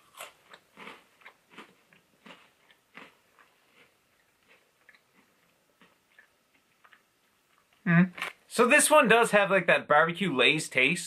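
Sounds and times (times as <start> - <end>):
chewing crunchy cracker chip: 0.0 - 8.4.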